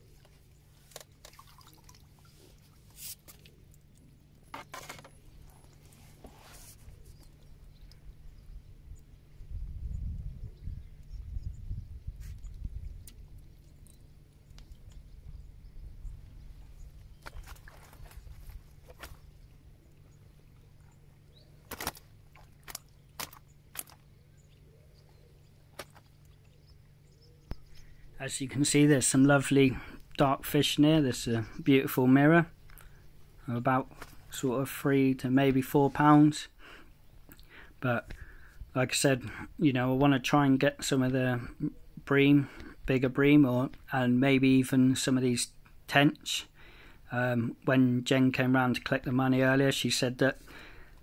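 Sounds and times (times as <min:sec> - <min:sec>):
fish slapping in wet net: 0:00.9 - 0:02.2, 0:21.6 - 0:24.0
water splashing and dripping: 0:00.9 - 0:04.1.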